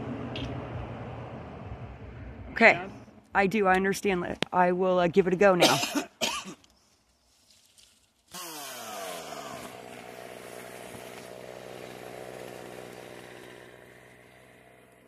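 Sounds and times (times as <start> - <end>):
chainsaw engine idling: 8.3 - 15.0.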